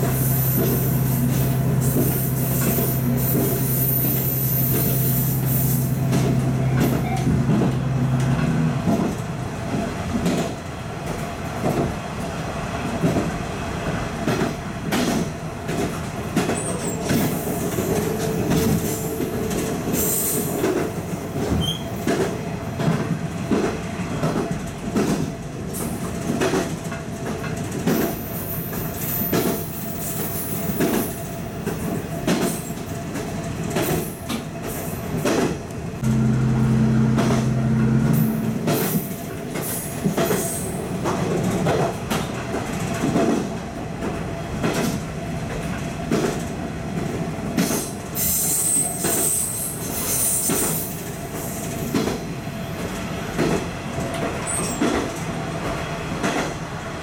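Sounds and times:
diesel railcar running: 0.0 - 57.0
high wheel squeal: 1.9 - 5.9
loud steady low tone: 36.0 - 39.0.

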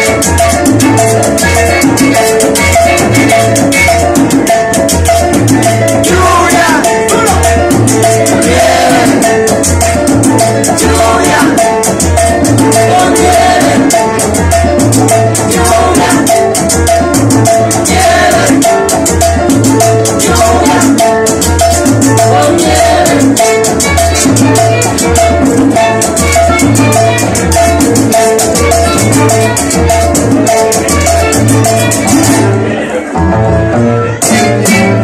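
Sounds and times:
bass line: 0.0 - 35.0
congas: 0.0 - 35.0
flute: 1.4 - 4.1
women singing: 6.0 - 7.3, 8.3 - 9.4, 10.5 - 11.9, 12.7 - 14.1, 15.4 - 16.6, 17.8 - 18.8, 20.2 - 21.2, 22.2 - 23.6
violin: 22.6 - 35.0.

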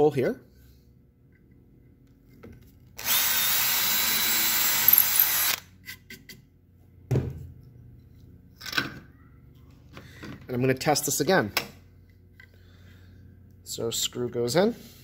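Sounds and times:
cordless drill boring into wood: 3.0 - 5.6.

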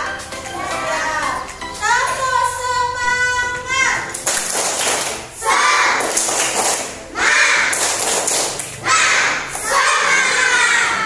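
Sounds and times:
sharp hand claps: 4.1 - 5.3, 6.0 - 7.0, 7.6 - 8.8
children shouting a chant: 5.4 - 6.1, 7.1 - 7.8, 8.8 - 11.0.

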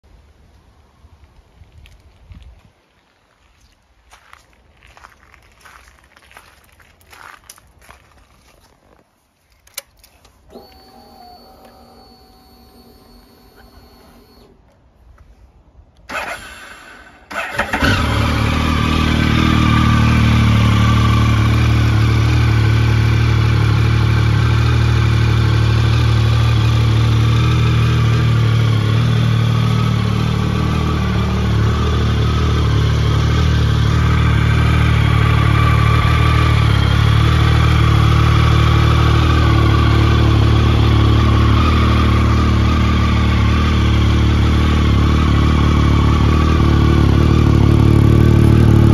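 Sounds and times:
starter motor cranking: 10.5 - 14.5
motorcycle engine idling: 18.1 - 48.9.

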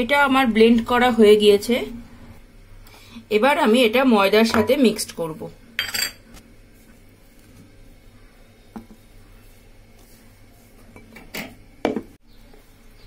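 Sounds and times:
kitchenware knocking against bowl: 5.8 - 6.2.

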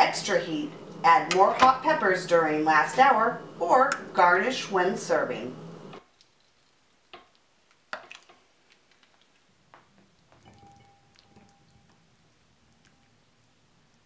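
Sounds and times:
wet squishes of chili ladled: 6.1 - 13.5.

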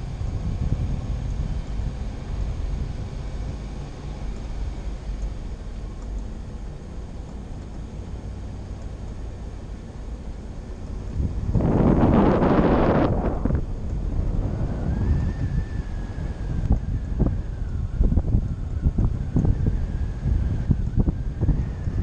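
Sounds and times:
wind on microphone: 0.0 - 3.8, 11.0 - 22.0
vehicle rumbling on dirt road: 0.0 - 22.0.

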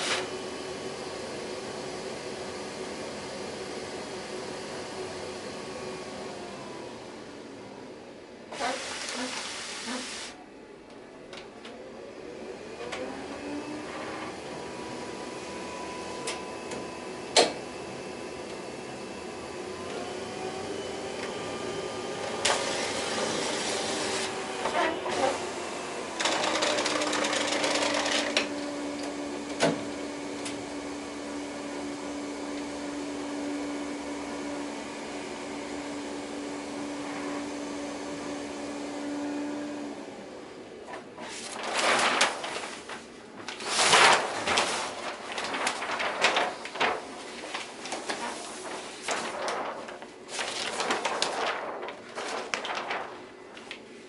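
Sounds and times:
hiss: 8.6 - 10.4
printer motor whine: 11.2 - 40.8.

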